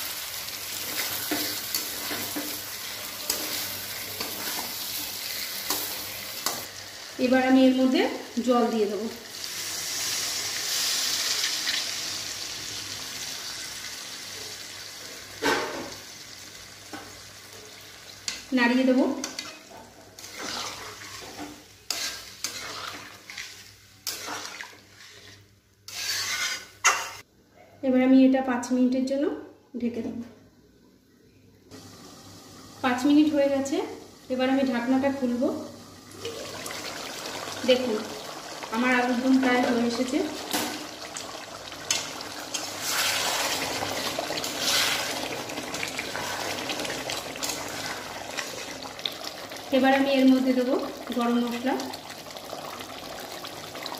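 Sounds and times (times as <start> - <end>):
gravy sizzling: 0.0 - 27.2, 31.7 - 53.9
spatula scraping metal pan: 20.2 - 27.2.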